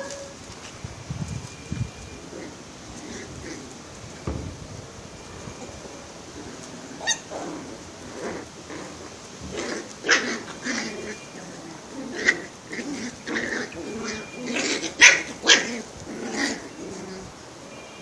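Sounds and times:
puppies barking and yelping: 0:02.1 - 0:04.4, 0:05.3 - 0:17.3.

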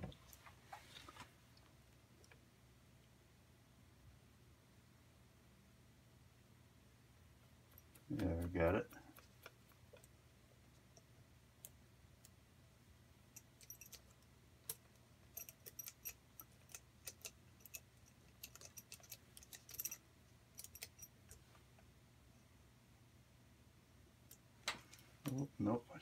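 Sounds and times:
small metal parts clicking: 0:13.4 - 0:20.0, 0:20.6 - 0:21.5.

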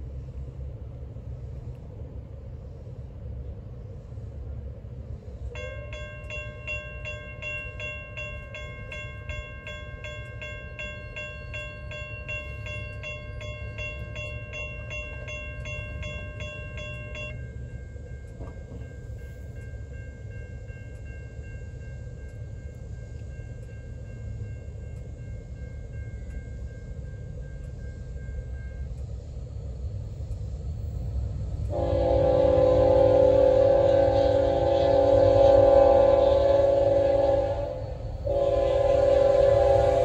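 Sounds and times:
crossing warning bell ringing: 0:05.5 - 0:29.0, 0:31.7 - 0:40.0
steady ringing tones: 0:05.6 - 0:30.0.

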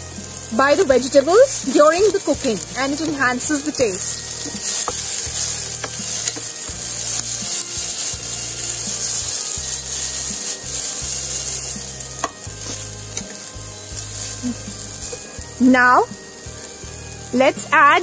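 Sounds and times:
vegetables sizzling in a pan: 0:00.0 - 0:18.0
spatula scraping a pan: 0:01.6 - 0:15.5.

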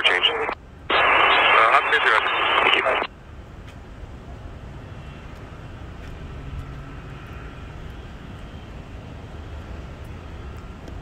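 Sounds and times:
faint high whine: 0:00.0 - 0:03.2
distant jet aircraft rumble: 0:00.0 - 0:11.0
road traffic rumble: 0:00.0 - 0:11.0.

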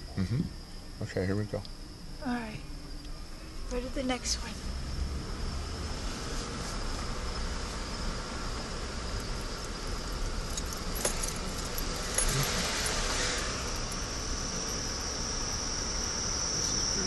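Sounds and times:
crickets chirping: 0:00.0 - 0:17.0
truck rumbling: 0:00.0 - 0:17.0
light metallic jingling: 0:09.0 - 0:15.2.

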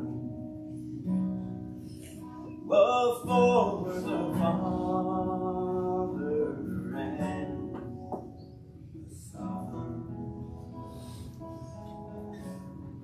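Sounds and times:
acoustic guitar: 0:00.0 - 0:13.0
man singing: 0:02.6 - 0:08.0.

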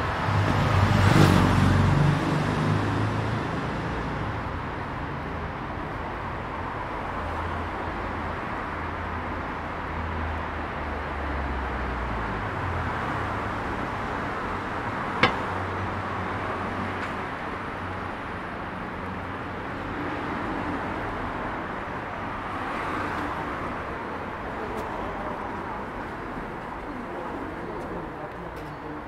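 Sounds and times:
traffic noise: 0:00.0 - 0:29.0
sharp knock: 0:15.2 - 0:15.6.

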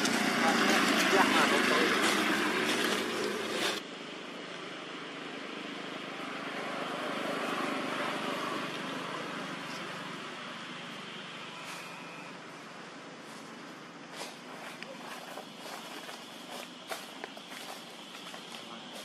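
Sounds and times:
loud noisy sound: 0:00.0 - 0:04.4
outdoor background hiss: 0:00.0 - 0:19.0.

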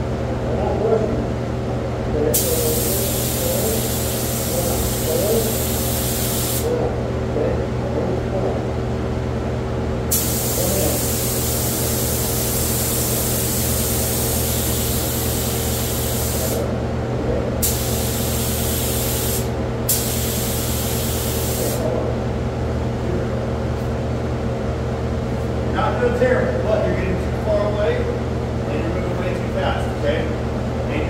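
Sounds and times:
spray gun hissing: 0:02.3 - 0:06.7, 0:10.1 - 0:16.6, 0:17.6 - 0:21.8.

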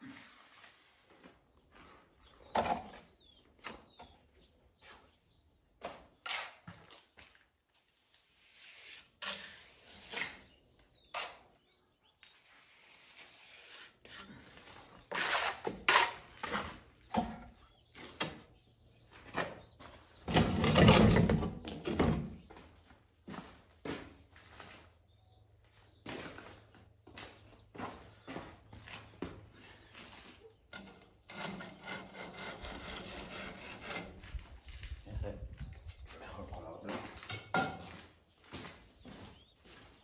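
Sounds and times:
trowel scraping mortar: 0:05.9 - 0:06.9, 0:08.2 - 0:11.7, 0:12.3 - 0:17.6, 0:30.8 - 0:34.3.

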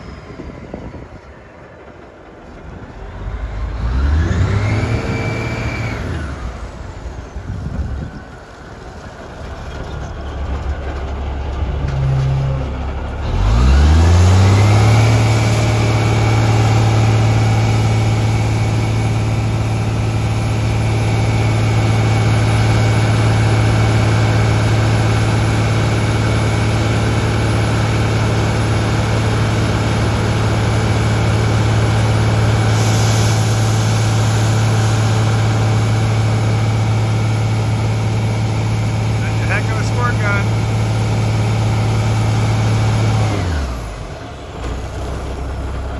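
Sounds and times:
fire truck engine revving: 0:00.0 - 0:45.9
water pump whine: 0:03.8 - 0:08.1, 0:13.3 - 0:45.6
water spraying hiss: 0:32.7 - 0:35.0.

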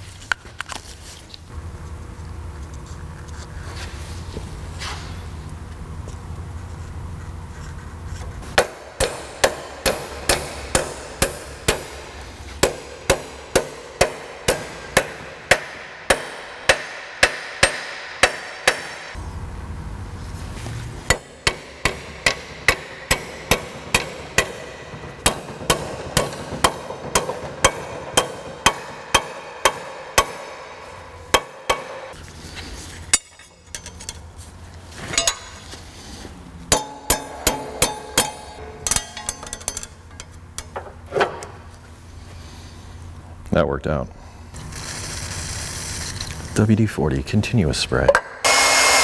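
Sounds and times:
hammer striking metal strap: 0:08.6 - 0:19.2, 0:21.1 - 0:32.2, 0:36.7 - 0:41.5.

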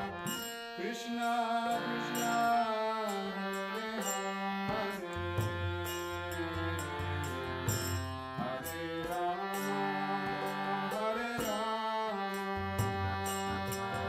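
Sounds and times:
harmonium chords: 0:00.0 - 0:14.0
man singing chant: 0:00.8 - 0:04.1, 0:08.4 - 0:14.0.

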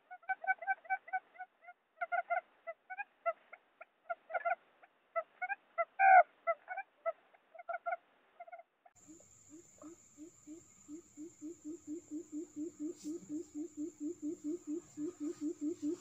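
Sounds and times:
quail calls: 0:05.2 - 0:16.0.

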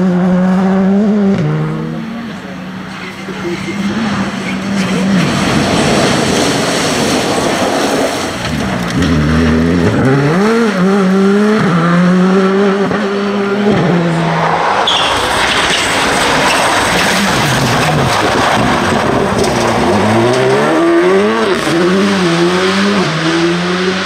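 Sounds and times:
rally car engines revving: 0:00.0 - 0:24.0
tyres on gravel: 0:02.8 - 0:09.5, 0:14.3 - 0:21.8.

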